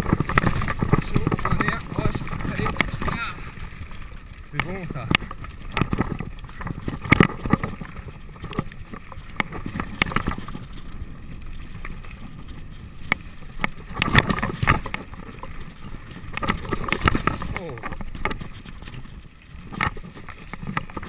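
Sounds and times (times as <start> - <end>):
wind noise on microphone: 0.0 - 3.8, 5.0 - 21.0
tyres crunching over stones: 0.0 - 10.9
bike rattling and knocking: 0.0 - 21.0.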